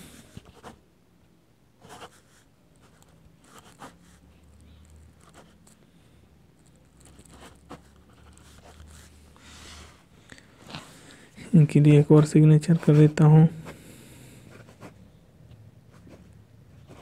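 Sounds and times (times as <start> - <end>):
pen scratching on paper: 0.2 - 0.8, 1.8 - 5.8, 6.6 - 10.0.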